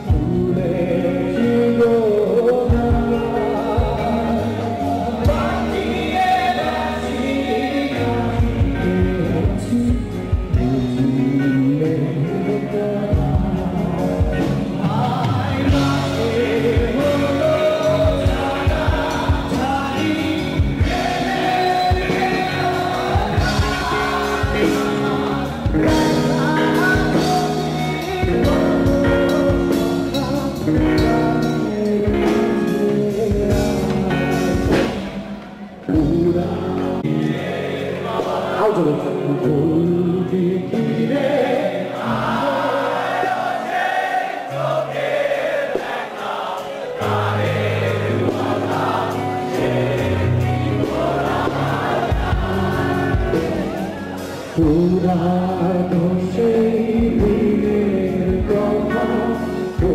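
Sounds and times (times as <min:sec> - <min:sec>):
person singing: 0:00.0 - 0:45.1, 0:46.2 - 0:59.9
live band playing: 0:00.0 - 0:59.9
drum beat: 0:20.5 - 0:31.3, 0:50.8 - 0:53.9.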